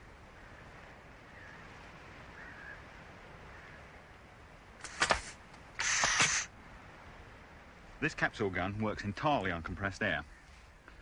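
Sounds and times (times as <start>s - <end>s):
air gun crack: 4.8s - 6.5s
blast of hissing air: 4.8s - 6.5s.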